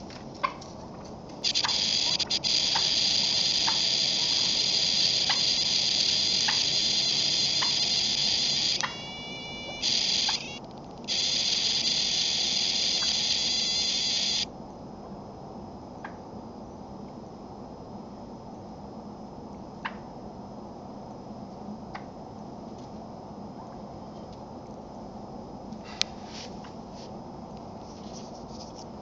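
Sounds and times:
loud steady hiss: 1.4 - 14.5.

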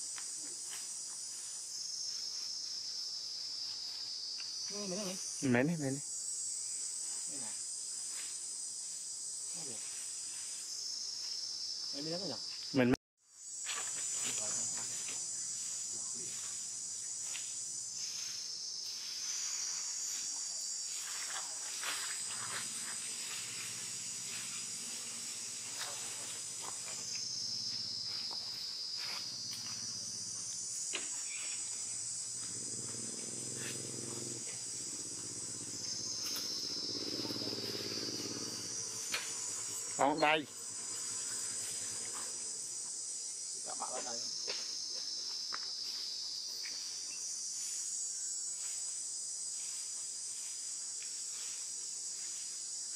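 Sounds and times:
forest insects chorus: 0.0 - 52.9.

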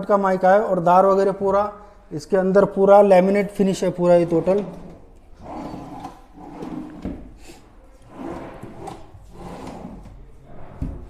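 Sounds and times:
drawers sliding open and shut: 3.9 - 7.4, 8.0 - 11.0.

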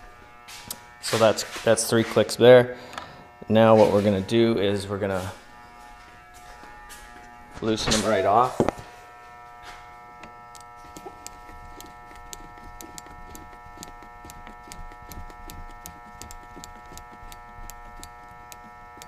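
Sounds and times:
damping adjuster clicking: 10.2 - 19.0.

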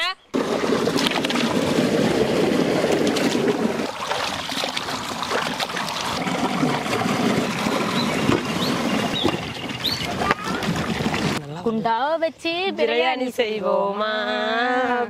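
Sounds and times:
water sloshing while washing chicken: 0.4 - 11.4.

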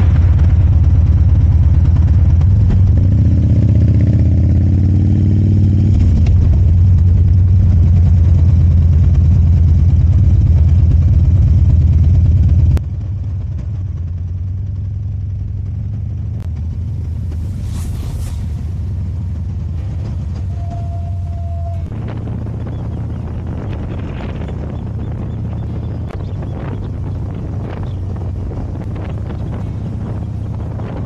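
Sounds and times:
motorcycle engine running: 0.0 - 31.0
brief whoosh: 16.4 - 22.2.

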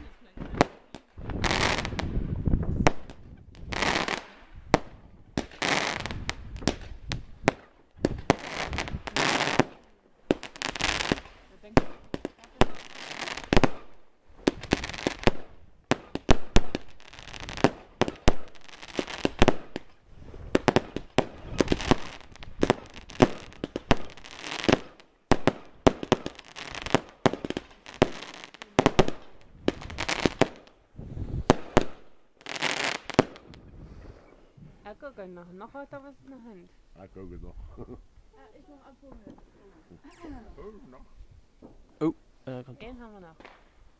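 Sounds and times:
fireworks crackle: 0.0 - 34.5
fireworks bangs: 0.0 - 34.8, 42.9 - 43.8.

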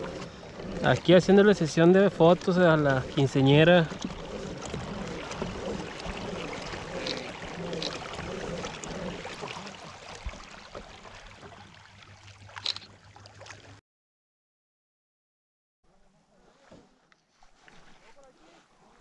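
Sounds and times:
water lapping around kayak: 0.0 - 13.8, 15.9 - 19.0.

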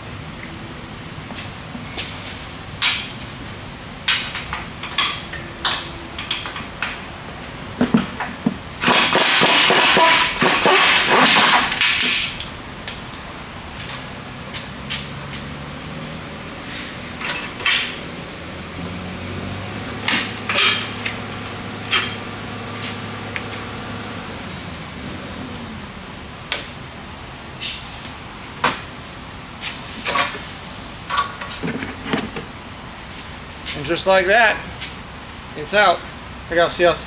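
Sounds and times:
air-powered wrench rattling: 8.8 - 12.5, 20.0 - 21.2
wrenches clicking on metal: 8.8 - 12.5, 20.1 - 21.2.

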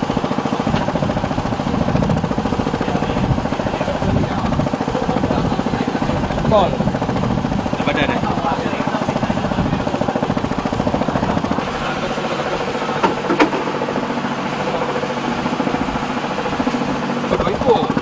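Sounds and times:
boat engine running: 0.0 - 18.0.

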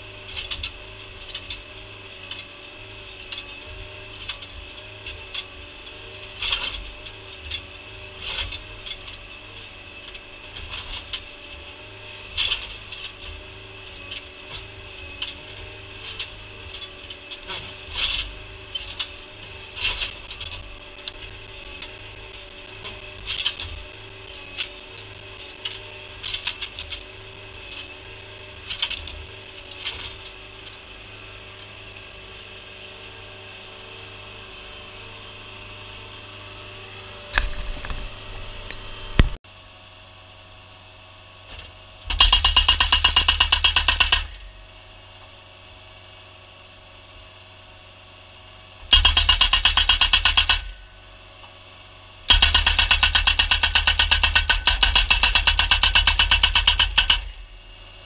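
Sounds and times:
skid steer engine running: 0.0 - 58.0
post driver hammering: 42.1 - 44.4, 48.9 - 50.8, 52.3 - 57.4.

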